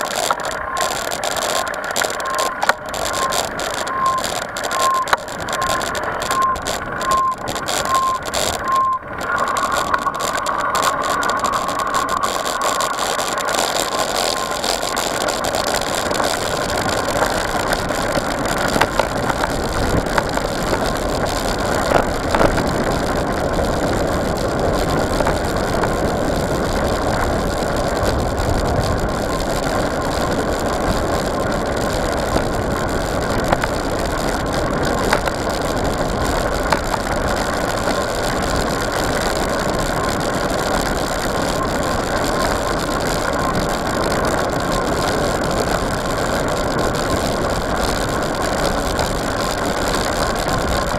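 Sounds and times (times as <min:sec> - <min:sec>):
bike tyres rolling on dirt: 0:00.0 - 0:50.9
wind rushing over camera: 0:00.0 - 0:50.9
short high beeps: 0:00.7 - 0:12.9.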